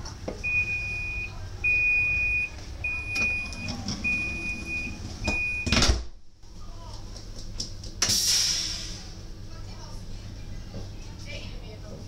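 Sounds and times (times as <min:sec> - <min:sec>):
high warning beep: 0:00.4 - 0:05.8.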